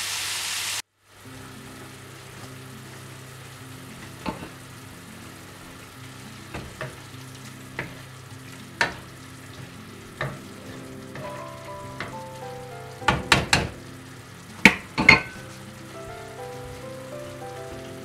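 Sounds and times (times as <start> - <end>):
food simmering in pan: 0.0 - 18.0
ladle knocking against pan: 6.5 - 7.0, 8.8 - 12.3, 13.0 - 13.8, 14.7 - 15.5.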